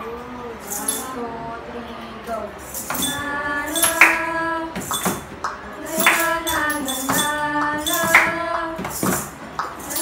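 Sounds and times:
shaker percussion hits: 0:00.6 - 0:01.2, 0:02.6 - 0:10.0
young voices singing in unison: 0:00.6 - 0:10.0.

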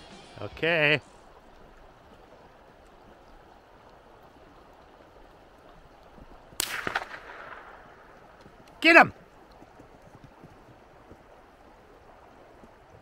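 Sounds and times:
gunshot crack with echoes: 0:06.6 - 0:08.1.

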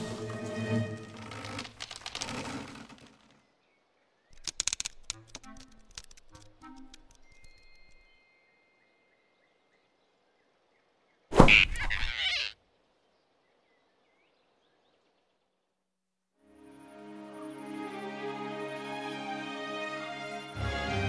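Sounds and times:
cartoon hit sound effect: 0:11.3 - 0:12.5.

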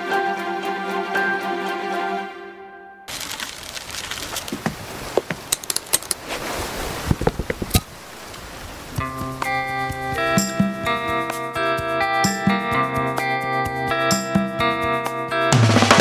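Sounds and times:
steady background hiss: 0:04.3 - 0:11.7
sharp clicks and clinks: 0:05.5 - 0:06.2.

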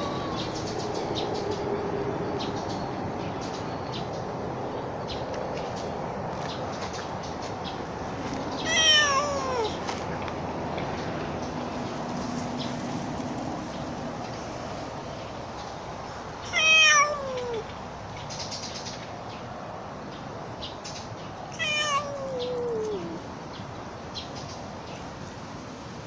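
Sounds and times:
cat meowing: 0:00.0 - 0:00.5, 0:08.6 - 0:09.8, 0:16.4 - 0:17.7, 0:21.5 - 0:23.2.

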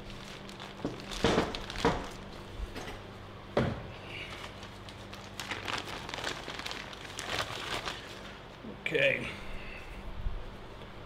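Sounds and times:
plastic bag crinkling: 0:00.0 - 0:02.4, 0:04.2 - 0:08.6
fan humming: 0:00.0 - 0:11.0.

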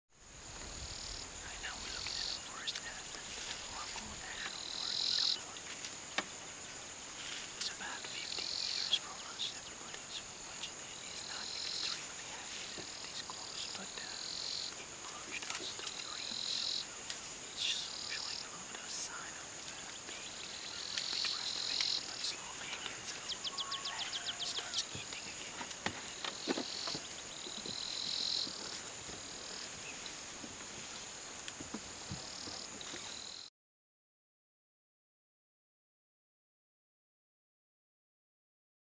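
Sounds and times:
lower insect buzz: 0:00.2 - 0:33.5
short insect chirps: 0:00.3 - 0:31.6
frogs trilling: 0:00.8 - 0:03.0, 0:03.7 - 0:05.6, 0:07.6 - 0:28.8.

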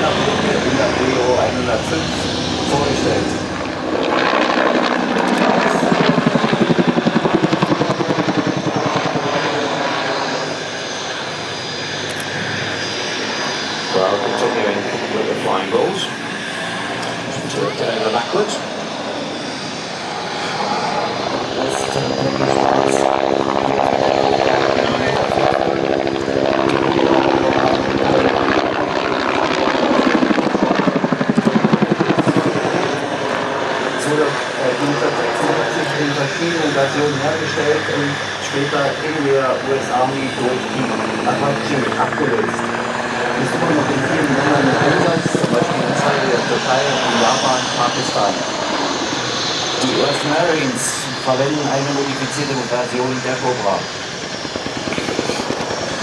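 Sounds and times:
helicopter humming: 0:00.0 - 0:56.0
helicopter rotor thudding: 0:54.0 - 0:56.0.

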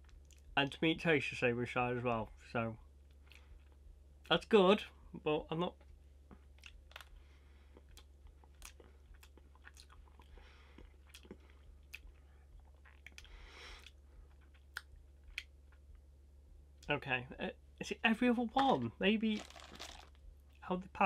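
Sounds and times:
faint chewing: 0:00.0 - 0:00.6, 0:03.1 - 0:03.8, 0:06.3 - 0:15.9.

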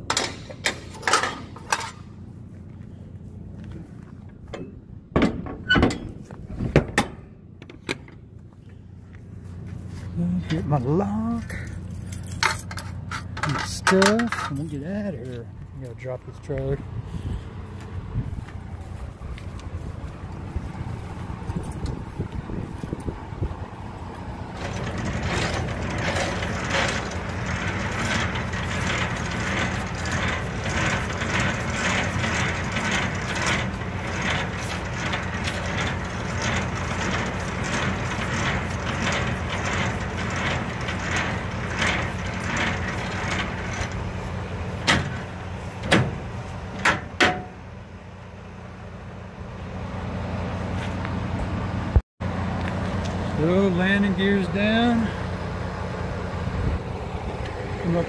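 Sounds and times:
sharp metal clanks: 0:00.0 - 0:02.2, 0:44.8 - 0:47.6
diesel engine idling: 0:00.0 - 0:05.2, 0:06.1 - 0:58.0
hand crank grinding: 0:24.4 - 0:45.4.

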